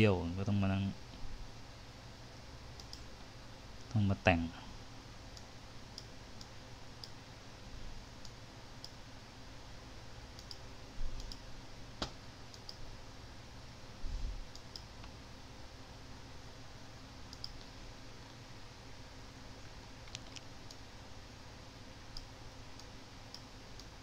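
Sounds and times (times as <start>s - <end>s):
steady low hum: 0.0s - 24.0s
computer mouse clicking: 2.8s - 3.1s, 5.4s - 7.2s, 10.4s - 10.6s, 11.2s - 11.4s, 12.0s - 12.8s, 14.5s - 15.2s, 17.3s - 17.7s, 20.0s - 20.8s, 22.2s - 24.0s.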